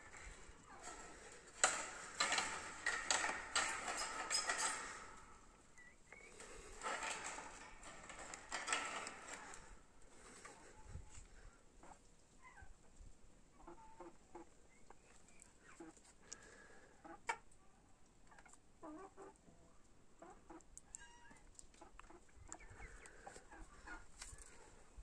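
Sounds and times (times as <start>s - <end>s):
hens clucking: 13.6s - 14.6s, 15.5s - 16.2s, 18.3s - 19.5s, 20.2s - 20.7s, 21.8s - 24.5s.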